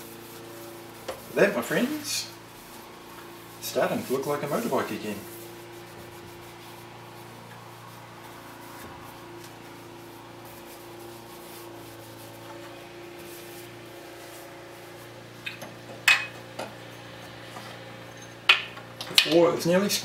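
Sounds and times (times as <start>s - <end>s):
rag rubbing on metal: 0.0s - 15.1s
steady low hum: 0.0s - 19.0s.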